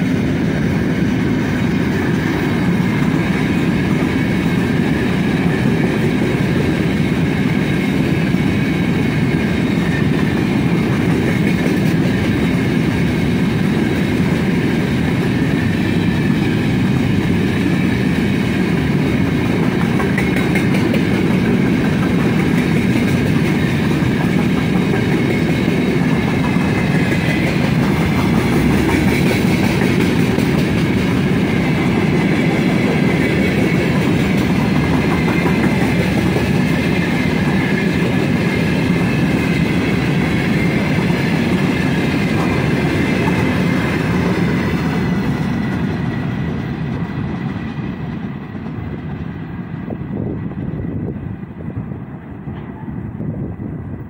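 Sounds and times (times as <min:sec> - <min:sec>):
steel wheels clattering on rails: 0:00.0 - 0:49.4.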